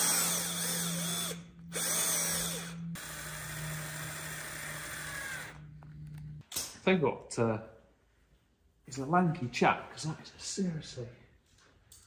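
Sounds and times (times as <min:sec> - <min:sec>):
cordless drill driving screws: 0:00.0 - 0:05.6.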